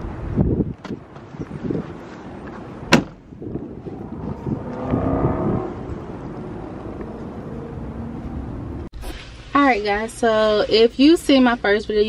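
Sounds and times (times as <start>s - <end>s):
wind on microphone: 0.0s - 2.4s, 3.2s - 8.9s
vehicle engine hum passing: 0.0s - 8.9s.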